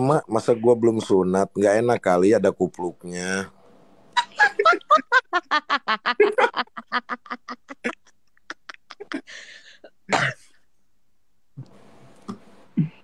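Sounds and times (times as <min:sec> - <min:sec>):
people laughing: 0:04.2 - 0:09.4
cough-like burst: 0:10.1 - 0:10.5.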